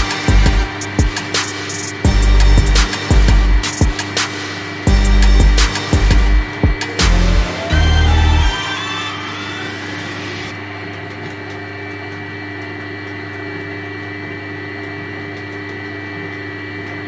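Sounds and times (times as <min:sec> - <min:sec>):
lathe hum and whine: 0:00.0 - 0:17.0.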